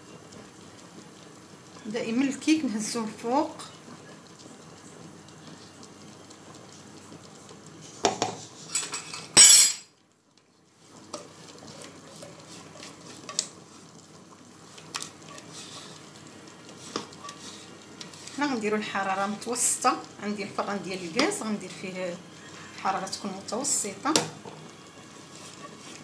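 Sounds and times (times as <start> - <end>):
spatula scraping batter: 16.8 - 18.4.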